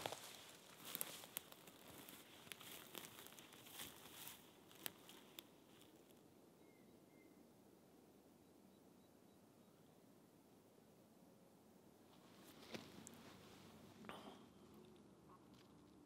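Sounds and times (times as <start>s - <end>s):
footsteps through dry heather: 0.0s - 6.2s, 12.1s - 14.0s.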